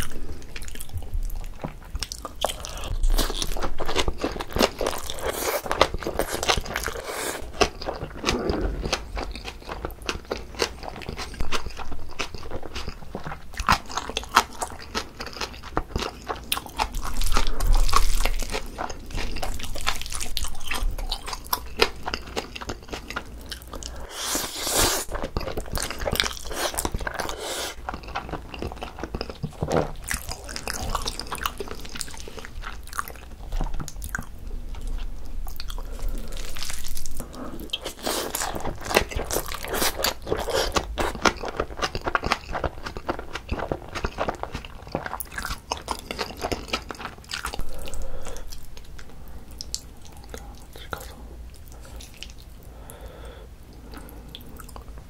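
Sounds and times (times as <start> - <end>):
chewing and crunching: 0.0 - 52.9, 53.7 - 55.0
slurping noodles: 24.0 - 25.1, 26.5 - 27.8.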